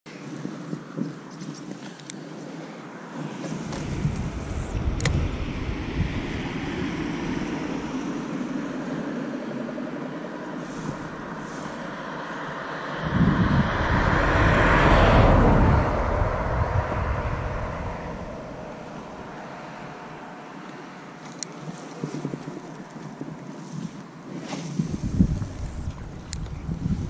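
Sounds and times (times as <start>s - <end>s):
vehicle passing by: 3.1s - 21.0s.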